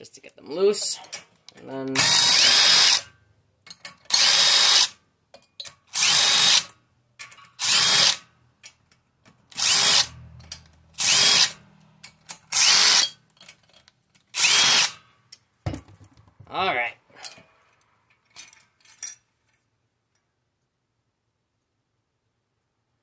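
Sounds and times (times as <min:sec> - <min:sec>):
impact driver bursts: 0:02.0 - 0:03.1, 0:04.1 - 0:05.0, 0:05.9 - 0:06.7, 0:07.6 - 0:08.2, 0:09.6 - 0:10.1, 0:11.0 - 0:11.6, 0:12.5 - 0:13.2, 0:14.3 - 0:15.0.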